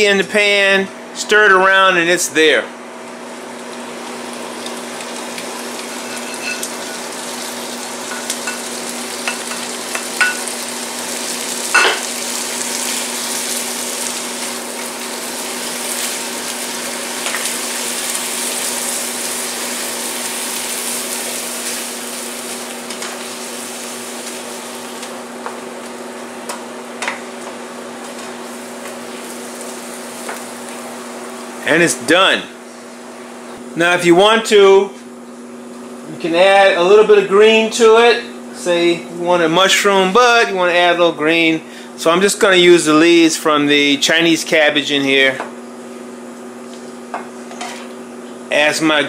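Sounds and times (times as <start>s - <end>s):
steady low hum: 0.0s - 13.0s
gravy sizzling in a frying pan: 3.2s - 31.7s
spoon scraping a pan: 5.9s - 7.1s.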